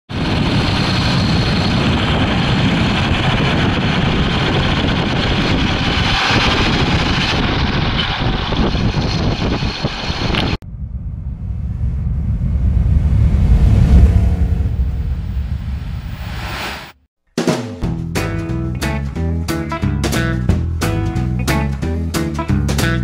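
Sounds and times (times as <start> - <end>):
wind and road noise: 0.1 - 17.0
deep low rumble: 0.2 - 17.0.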